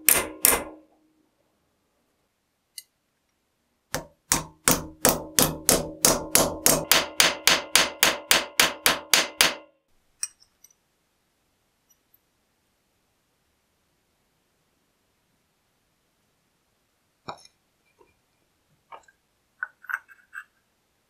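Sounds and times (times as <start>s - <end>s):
hammer ringing on metal: 0.0s - 0.9s, 4.0s - 9.7s.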